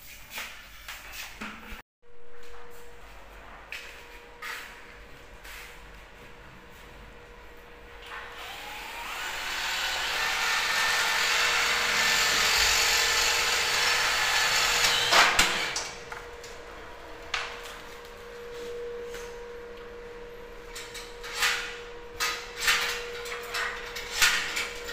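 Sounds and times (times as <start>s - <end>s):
electric winch whining: 8.2s - 17.2s.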